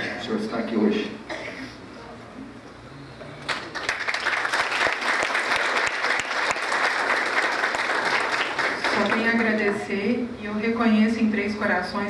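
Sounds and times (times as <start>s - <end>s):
audience applauding: 3.4s - 9.9s.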